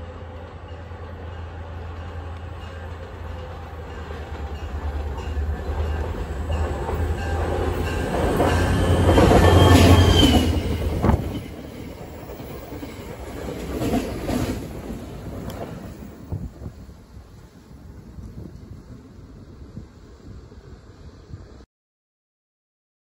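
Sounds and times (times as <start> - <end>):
train wheel squeal: 0.0 - 14.5
diesel locomotive engine rumble: 0.0 - 21.6.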